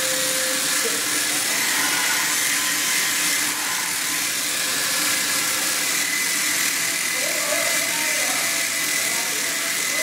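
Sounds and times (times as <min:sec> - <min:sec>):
welding arc hissing and spattering: 0:00.0 - 0:10.0.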